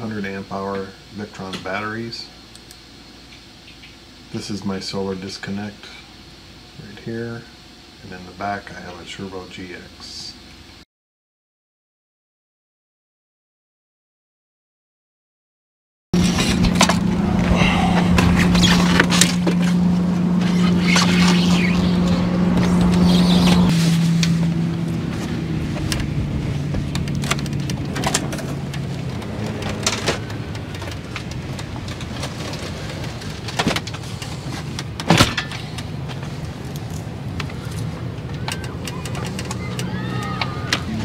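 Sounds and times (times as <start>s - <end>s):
motor vehicle drone: 16.2s - 41.0s.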